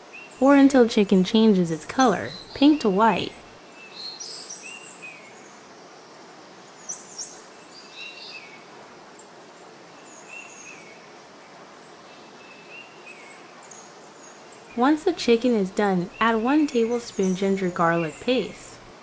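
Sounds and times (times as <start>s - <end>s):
bird chirps: 15.9s - 18.8s.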